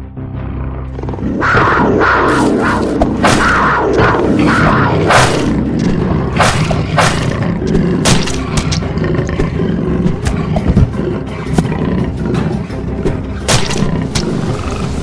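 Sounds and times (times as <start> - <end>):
big cats snarling and roaring: 0.9 - 15.0
sudden sharp sounds: 1.4 - 8.8.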